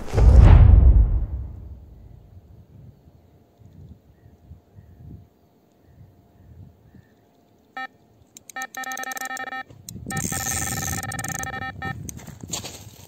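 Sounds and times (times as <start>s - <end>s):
bite alarm beeping: 7.8s - 12.1s.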